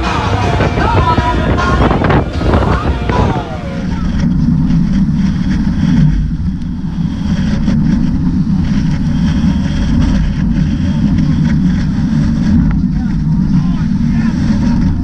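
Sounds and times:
hull knocking on waves: 0.0s - 6.2s
boat engine rumble: 0.0s - 15.0s
rushing water: 0.0s - 15.0s
wind: 0.0s - 15.0s.

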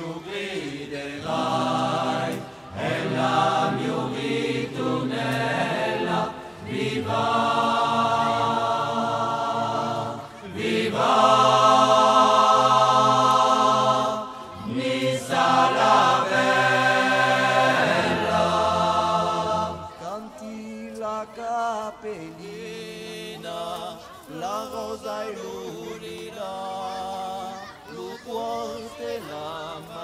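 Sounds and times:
voices chanting long notes: 0.0s - 20.9s.

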